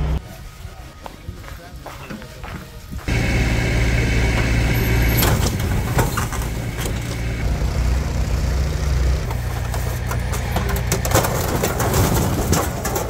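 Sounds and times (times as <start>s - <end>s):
vehicle engine running: 0.0s - 0.2s, 3.1s - 13.0s.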